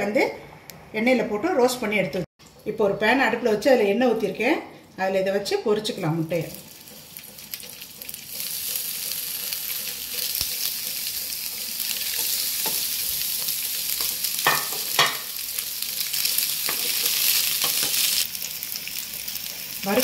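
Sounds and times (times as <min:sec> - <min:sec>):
egg sizzling in hot oil: 0:06.3 - 0:20.0.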